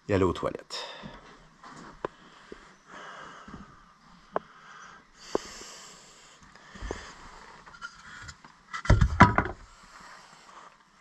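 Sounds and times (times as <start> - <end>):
footsteps on wooden floorboards: 3.4 - 3.8.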